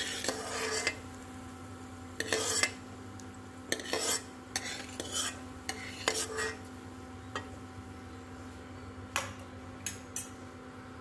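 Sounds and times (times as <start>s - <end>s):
spoon scraping and tapping a wok: 0.0s - 1.0s, 2.2s - 2.8s, 3.7s - 6.7s, 7.3s - 7.6s.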